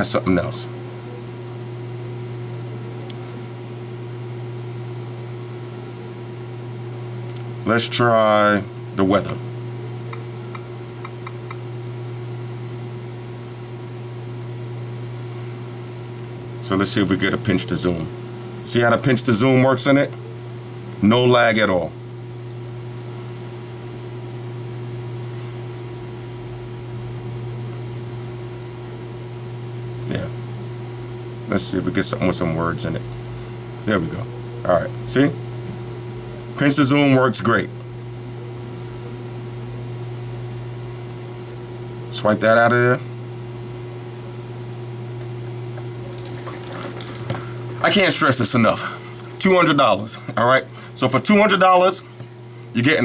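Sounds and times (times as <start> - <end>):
low hum with faint hiss: 0.0 - 53.0.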